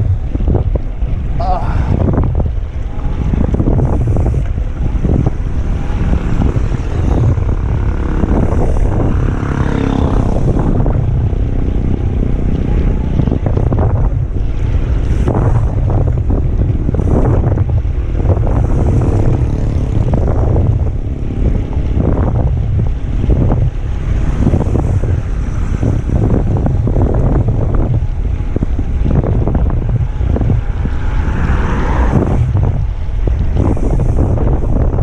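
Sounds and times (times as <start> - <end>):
wind buffeting microphone: 0.0 - 35.0.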